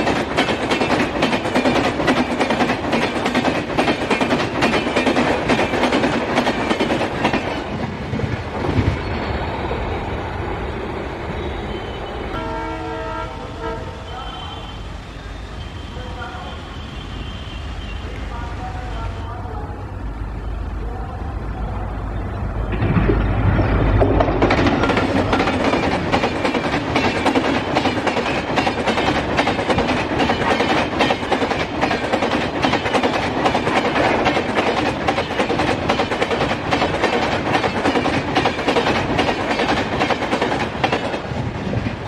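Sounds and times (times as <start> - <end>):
wheels clacking over rail joints: 0.0 - 8.9, 22.6 - 42.0
train passing at speed: 0.0 - 42.0.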